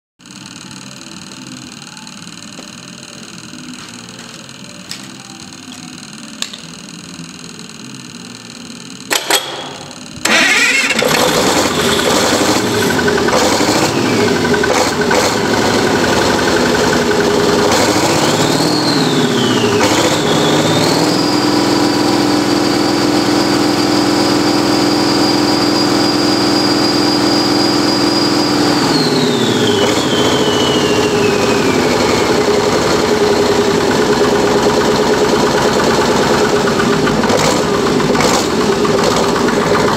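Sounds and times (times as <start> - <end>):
diesel engine starting and revving: 9.0 - 39.9.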